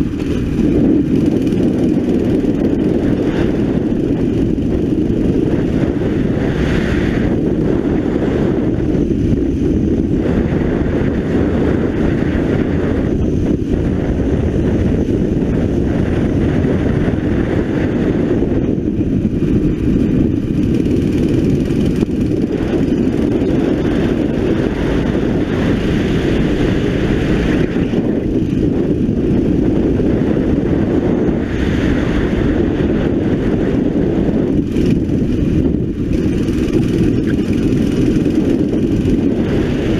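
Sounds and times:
kart engine accelerating and slowing: 19.4s - 31.4s, 32.6s - 39.9s.

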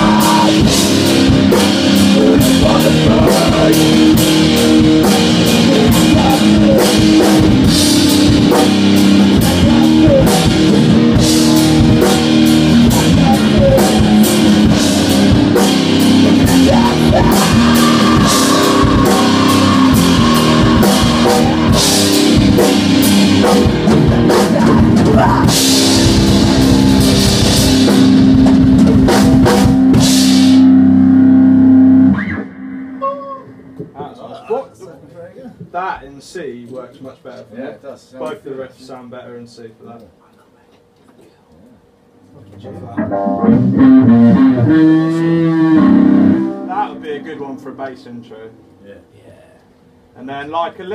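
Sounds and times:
live rock band playing: 0.0s - 33.9s, 42.8s - 48.0s
distorted electric guitar: 0.0s - 34.1s, 42.6s - 48.2s
drum kit beats: 0.0s - 34.3s, 41.8s - 48.8s
cymbal crashes: 17.3s - 24.5s.

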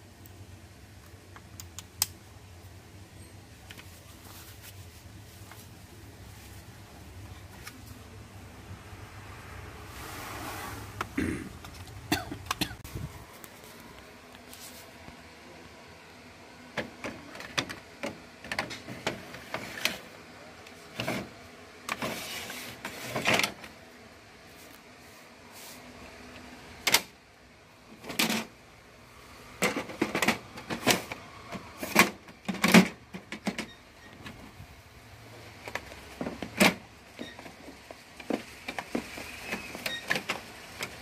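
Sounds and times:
plastic parts clicking and knocking: 16.8s - 20.0s, 29.6s - 34.5s, 35.6s - 41.0s.

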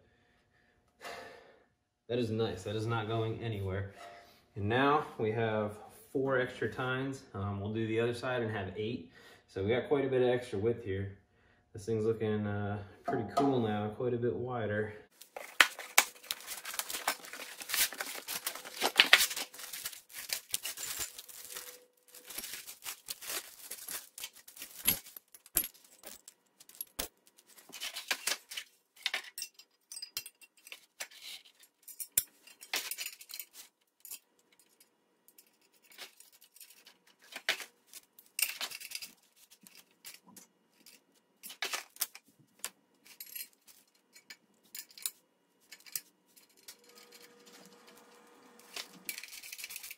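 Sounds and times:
cardboard tearing and rustling: 15.2s - 28.7s
metal bolts and nuts clinking: 15.4s - 42.2s, 43.0s - 49.9s.

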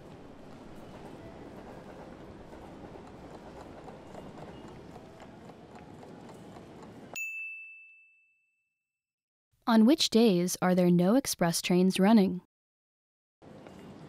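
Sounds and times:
train station ambience: 0.0s - 7.2s, 13.4s - 14.0s
bell chime: 7.2s - 8.7s.

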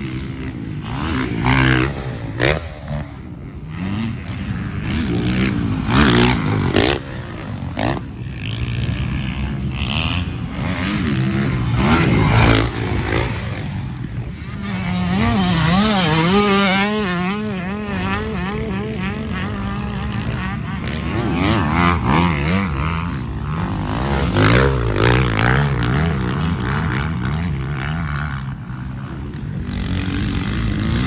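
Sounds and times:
dirt bike engines revving: 0.0s - 31.0s
dirt bike passing loudly: 0.0s - 31.0s.

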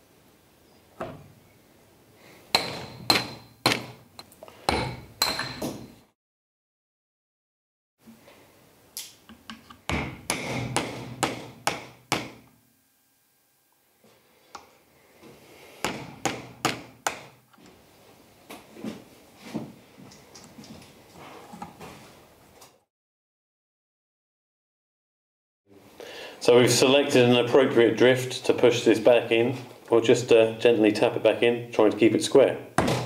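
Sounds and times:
tools tapping on metal: 2.5s - 5.8s.

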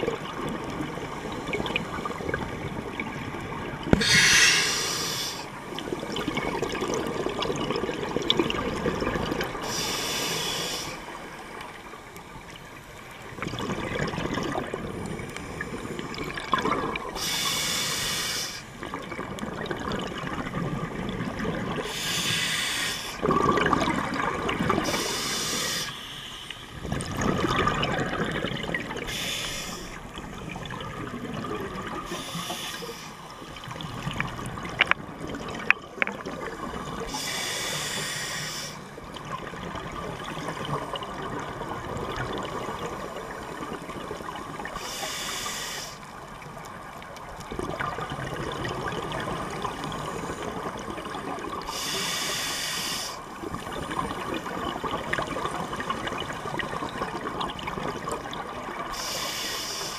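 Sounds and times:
exhaled bubbles churning: 0.0s - 9.8s, 11.1s - 17.2s, 18.8s - 22.1s, 23.1s - 25.7s, 26.7s - 32.6s, 33.3s - 37.2s, 38.8s - 44.8s, 46.2s - 51.9s, 53.2s - 59.0s
regulator hiss: 4.0s - 5.6s, 9.6s - 11.2s, 17.2s - 18.8s, 21.9s - 23.2s, 24.8s - 26.7s, 29.1s - 30.0s, 32.1s - 33.6s, 37.1s - 38.9s, 44.8s - 46.1s, 51.7s - 53.3s, 58.9s - 59.9s.

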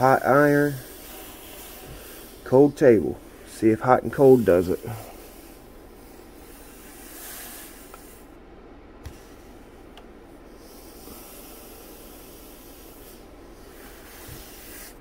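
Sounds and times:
iron hissing steam: 0.0s - 8.3s, 10.5s - 15.0s.

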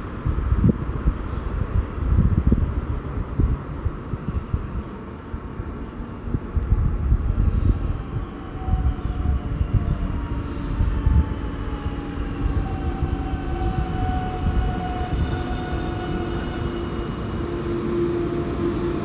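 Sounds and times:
train rumble: 0.0s - 19.0s
falling multi-tone whine: 5.8s - 19.0s.

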